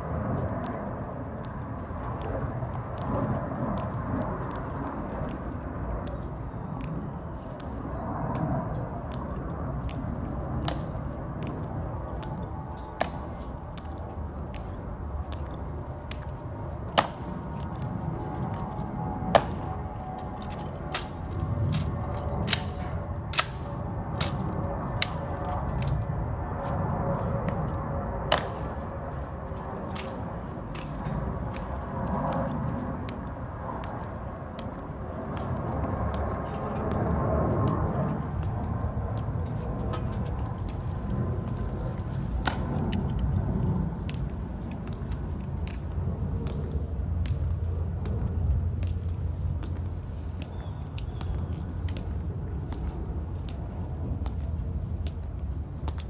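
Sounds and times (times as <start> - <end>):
rifles being handled: 15.4 - 26.0, 26.6 - 31.8.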